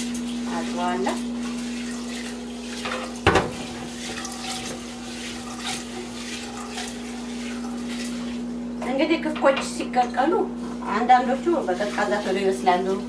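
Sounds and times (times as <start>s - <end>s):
lentils swished in water: 11.0s - 13.0s.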